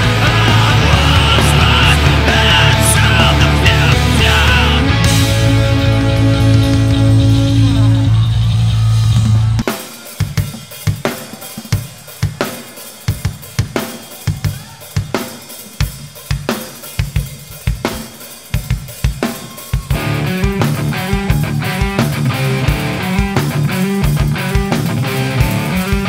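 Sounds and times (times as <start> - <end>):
electric guitars: 0.0 - 9.7, 19.4 - 26.0
rock band chord: 0.0 - 11.0, 19.0 - 26.0
drum kit playing a beat: 0.0 - 26.0.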